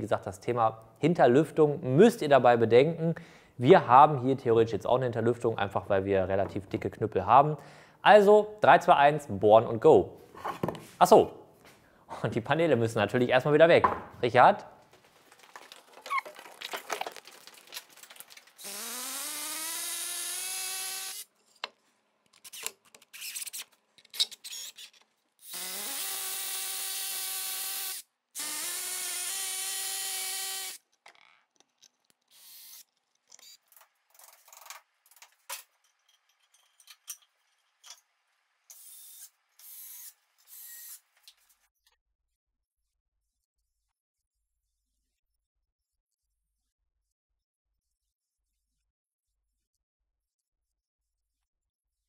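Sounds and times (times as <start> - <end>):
drill boring into brick: 18.6 - 21.3, 24.4 - 30.8, 32.3 - 33.6, 38.7 - 41.0
drill driving screws: 18.6 - 21.3, 24.3 - 30.8, 32.3 - 33.6, 38.7 - 41.0.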